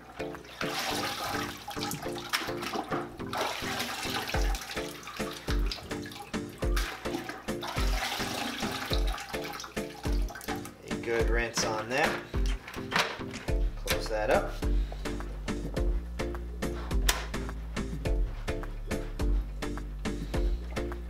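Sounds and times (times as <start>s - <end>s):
water sloshing in a bucket: 0.0s - 12.5s
background music with steady beat: 0.0s - 21.0s.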